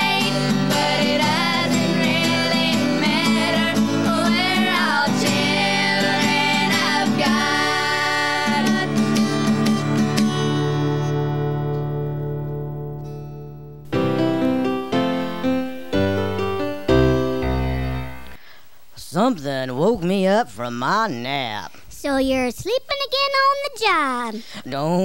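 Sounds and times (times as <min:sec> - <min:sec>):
girls singing: 0:00.0 - 0:09.9
strummed acoustic guitar: 0:00.0 - 0:15.6.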